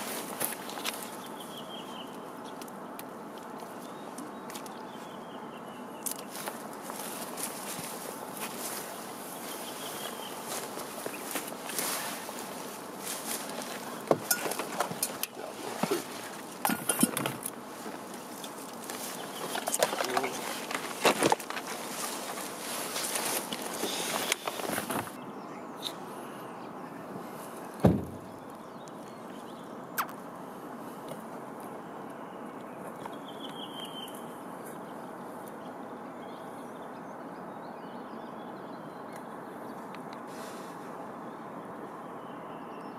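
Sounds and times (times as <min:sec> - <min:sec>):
rushing outdoor background noise: 0:00.0 - 0:42.9
light clinks and knocks: 0:14.1 - 0:17.5.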